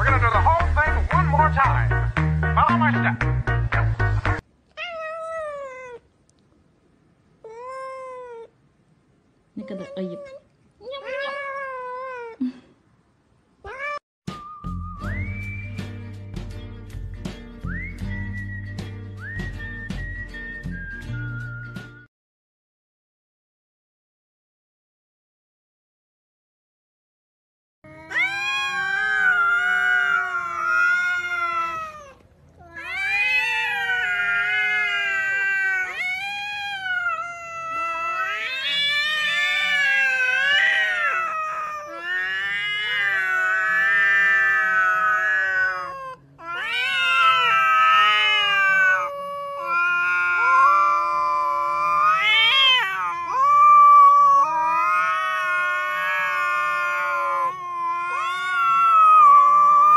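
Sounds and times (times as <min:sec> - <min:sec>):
cats yowling: 0:04.8 - 0:06.1, 0:07.4 - 0:08.6, 0:09.6 - 0:12.4, 0:28.0 - 0:59.9.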